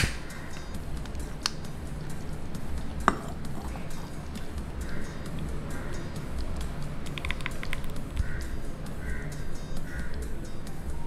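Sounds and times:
low steady hum: 0.0 - 11.0
ceramic bowl clinking on stand: 3.0 - 3.4.

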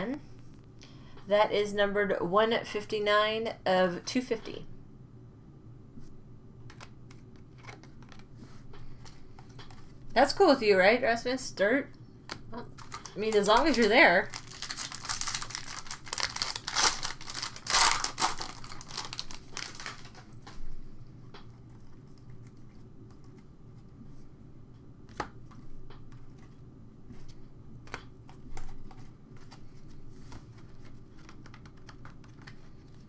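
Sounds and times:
cards rustling: 6.7 - 10.0, 12.3 - 20.6
foil pack crinkling and tearing: 12.7 - 20.4.

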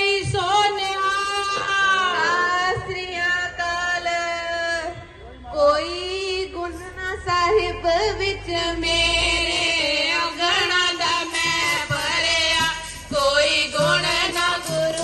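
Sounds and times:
group singing a hymn: 7.3 - 15.0.

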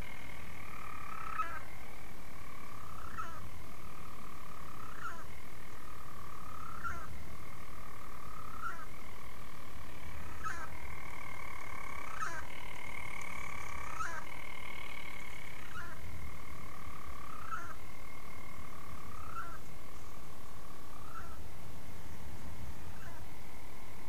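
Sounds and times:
bird churring call: 0.0 - 7.2, 8.0 - 9.0, 10.2 - 21.4, 22.9 - 23.3.

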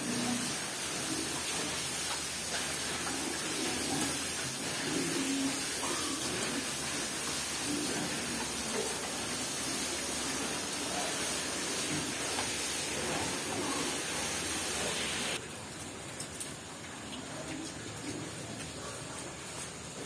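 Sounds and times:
steady hiss: 0.0 - 15.4
piglets grunting: 2.8 - 15.3.

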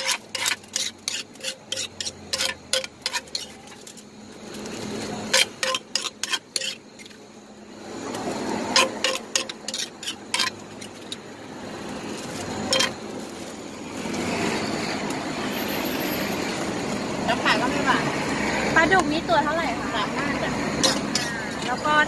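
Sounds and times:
metal spoon scraping clay mortar: 0.0 - 4.0, 4.7 - 7.2, 8.6 - 11.2, 12.1 - 13.1, 20.7 - 21.7.

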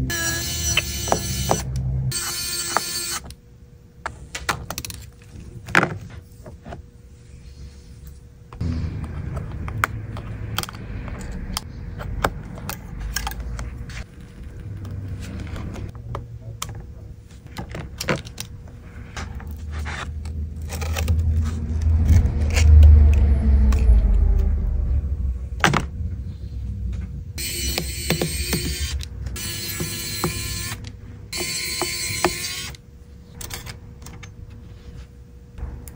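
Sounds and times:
low handling rumble: 8.5 - 17.2, 21.0 - 27.4.

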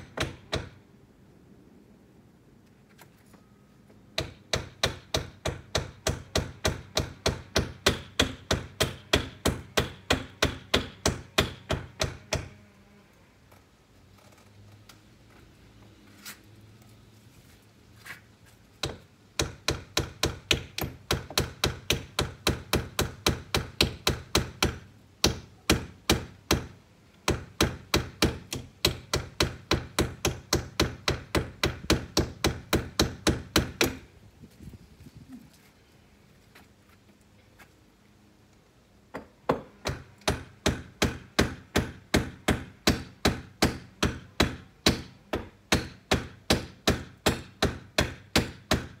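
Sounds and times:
hammer driving nails: 39.1 - 49.0.

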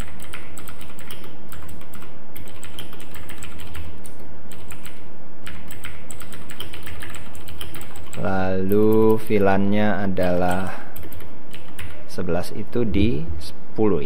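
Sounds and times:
keystrokes on computer keyboard: 0.0 - 9.4, 10.2 - 12.0
steady low hum: 0.0 - 14.0.

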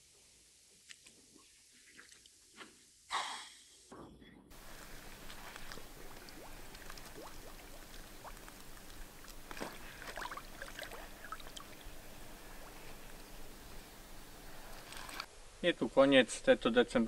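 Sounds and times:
fish splashing: 4.5 - 13.5, 14.5 - 15.3
shallow water sloshing: 4.5 - 15.3.

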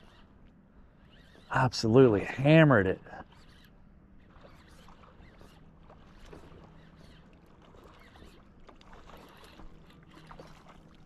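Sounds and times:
water splashing: 4.2 - 11.0.

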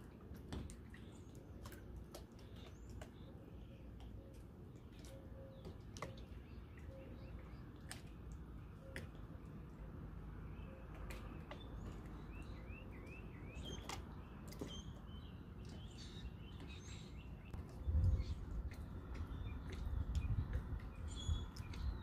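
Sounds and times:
low steady rumble: 17.2 - 22.0.

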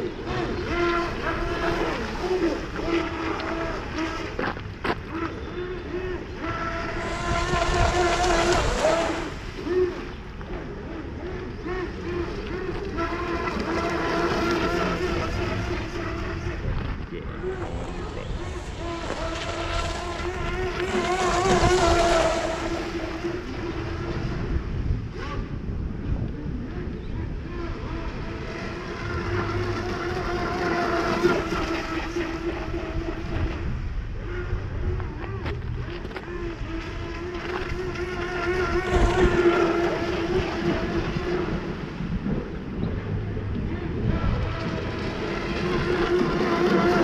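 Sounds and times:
electric boat motor whining: 0.0 - 47.0.

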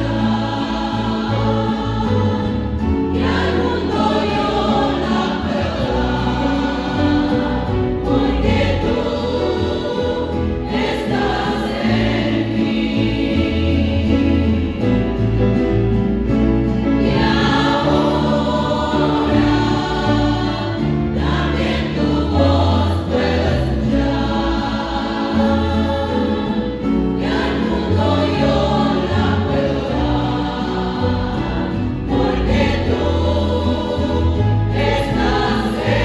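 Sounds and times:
sustained bass line: 0.0 - 36.0
women's choir singing a hymn: 0.0 - 36.0.

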